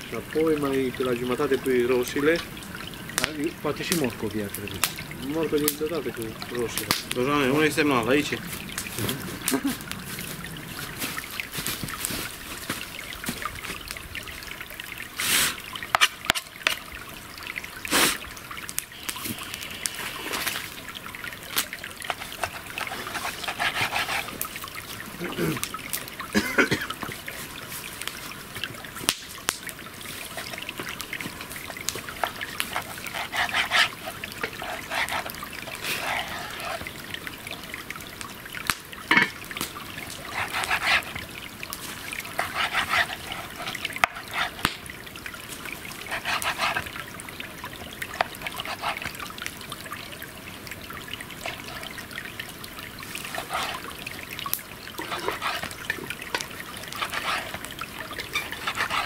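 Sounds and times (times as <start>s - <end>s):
campfire crackling pops: 2.3s - 5.8s, 6.5s - 7.3s, 8.2s - 14.0s, 17.9s - 20.8s, 28.0s - 29.8s, 38.6s - 40.4s, 43.8s - 45.7s.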